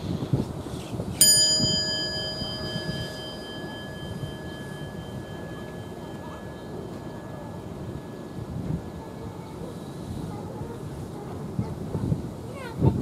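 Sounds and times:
outdoor background hum: 0:00.0 - 0:13.0
metal chime ringing: 0:01.2 - 0:10.3.

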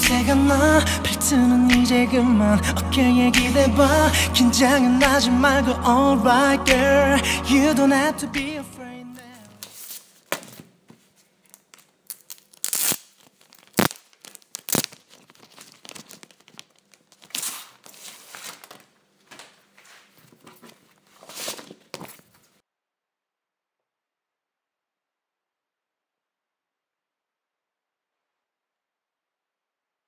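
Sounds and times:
plastic packaging crinkling: 0:11.4 - 0:22.5.

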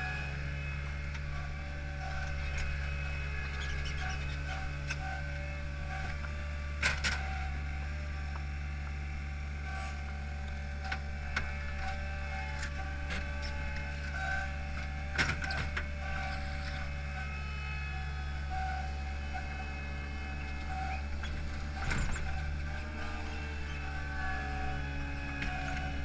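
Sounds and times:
machine engine droning: 0:00.0 - 0:26.0.

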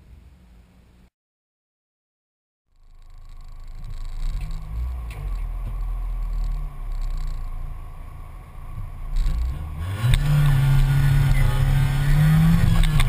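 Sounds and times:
car engine idling with throttle blips: 0:02.8 - 0:13.0.

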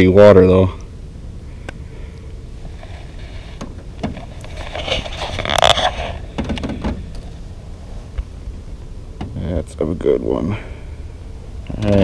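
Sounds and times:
steady low rumble: 0:00.0 - 0:12.0
rustling scrape: 0:02.6 - 0:08.2.

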